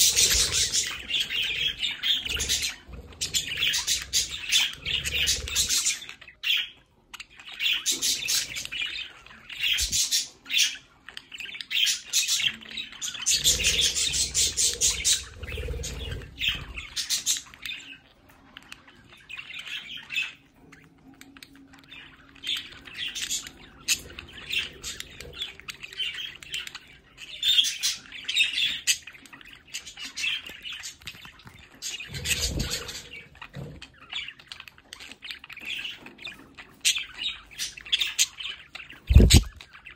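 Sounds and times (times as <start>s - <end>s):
budgerigars chirping: 0.0s - 39.9s.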